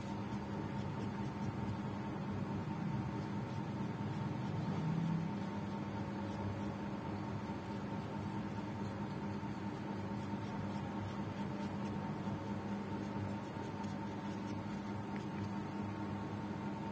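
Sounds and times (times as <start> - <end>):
steady hum: 0.0 - 16.9.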